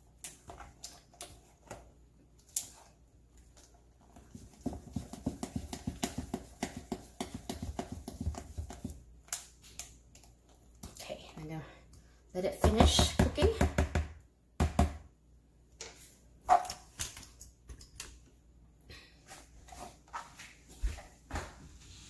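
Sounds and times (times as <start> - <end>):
wooden spoon stirring batter: 0.0 - 13.6, 19.3 - 21.2.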